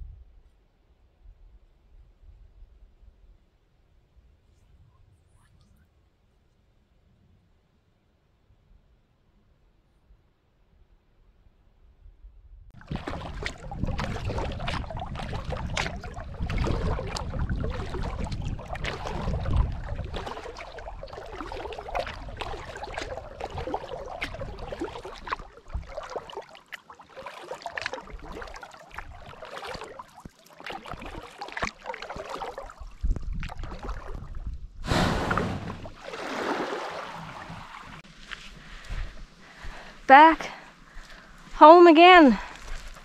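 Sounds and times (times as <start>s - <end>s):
kayak running onto sandy shore: 12.8s - 26.3s, 34.8s - 40.0s
paddle splashing in water: 12.8s - 41.6s.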